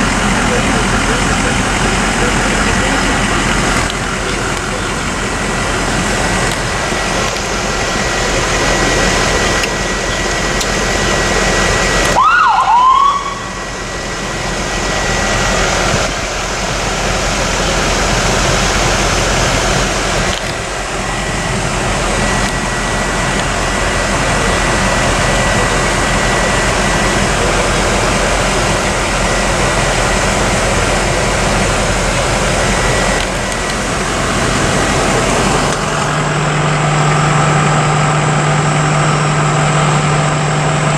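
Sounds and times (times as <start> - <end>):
rushing noise in vehicle cab: 0.0 - 40.9
electronic siren chirp: 12.0 - 15.3.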